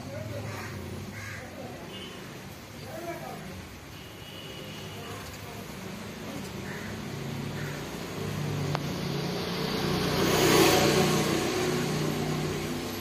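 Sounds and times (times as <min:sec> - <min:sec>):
vehicle passing by: 0:05.7 - 0:13.0.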